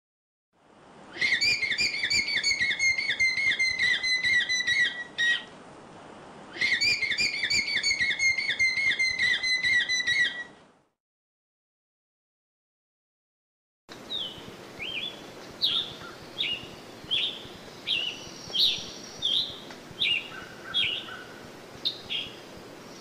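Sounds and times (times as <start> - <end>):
shrill whistling alarm call: 1.2 - 5.4, 6.6 - 10.4.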